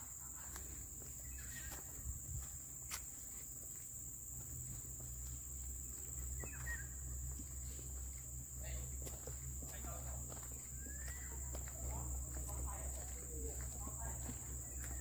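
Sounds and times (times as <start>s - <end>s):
faint chirps: 0.0s - 2.2s, 5.8s - 9.4s, 10.4s - 12.0s
high-pitched insect drone: 0.0s - 15.0s.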